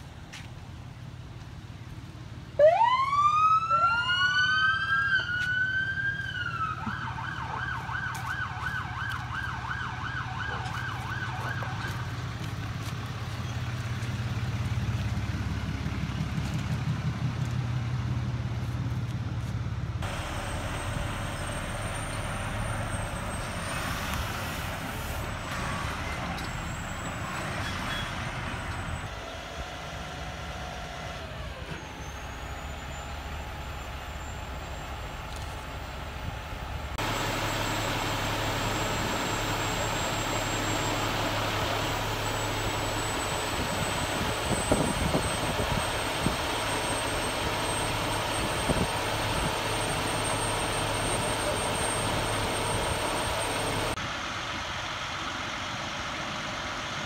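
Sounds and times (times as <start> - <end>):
low engine rumble: 0.0 - 57.0
siren wailing and yelping: 2.6 - 12.1.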